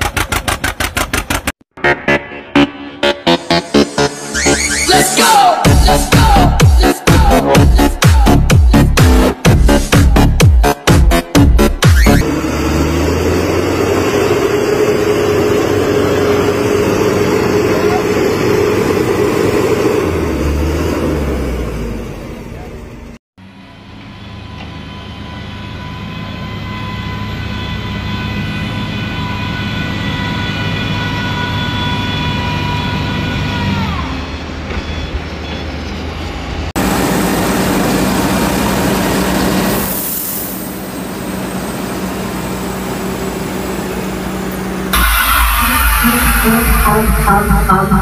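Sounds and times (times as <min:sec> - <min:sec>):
rough engine and mud noise: 0:00.0 - 0:01.6, 0:11.9 - 0:24.8, 0:32.0 - 0:48.0
truck diesel engine in mud: 0:00.0 - 0:01.6, 0:12.2 - 0:46.4
high whine: 0:11.8 - 0:20.4, 0:44.0 - 0:48.0.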